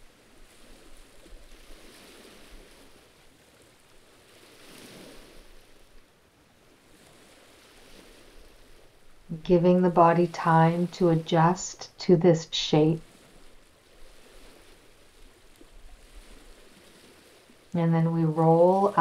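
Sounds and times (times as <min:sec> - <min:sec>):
waves washing on rocks: 0:13.0 - 0:17.7.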